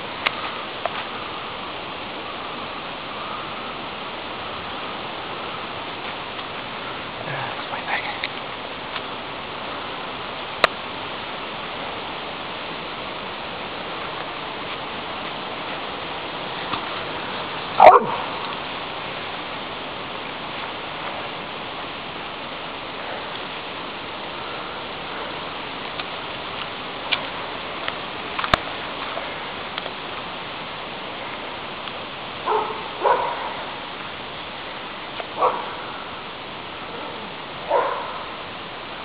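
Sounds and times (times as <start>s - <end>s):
steady rushing hiss: 0.0s - 39.0s
dog barking: 17.8s - 18.3s, 32.4s - 33.6s, 35.4s - 35.8s, 37.0s - 38.3s.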